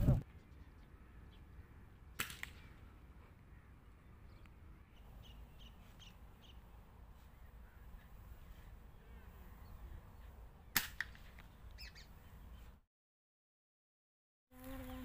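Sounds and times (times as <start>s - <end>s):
short high bird calls: 11.8s - 12.1s.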